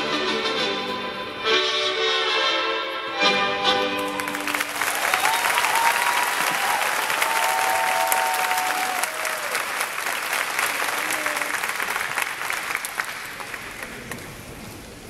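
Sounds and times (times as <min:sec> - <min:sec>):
audience applauding: 0:04.0 - 0:14.7
crowd calling out: 0:04.7 - 0:11.9.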